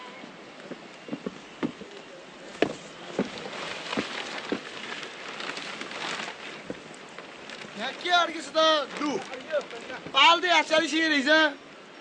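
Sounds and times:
rustling hiss: 0.0 - 12.0
footsteps on rocky grassland: 0.6 - 1.9, 2.5 - 5.1.

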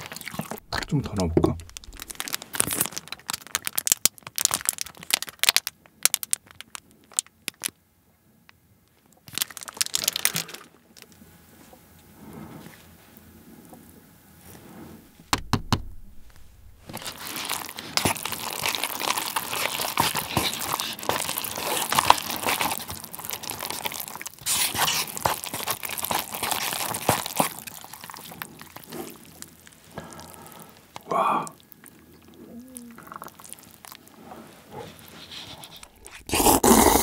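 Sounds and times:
sharp clicks: 15.2 - 16.9
chopsticks stirring sticky noodles: 16.8 - 30.1, 34.4 - 37.0.

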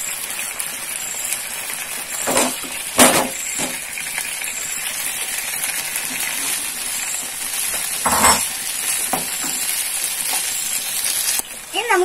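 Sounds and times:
frying pan sizzling: 0.0 - 12.0
food knocking against pan: 9.1 - 9.7.

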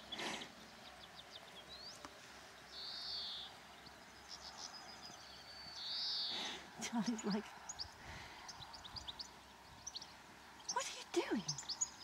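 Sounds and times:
bird twittering ticks: 7.2 - 12.0.

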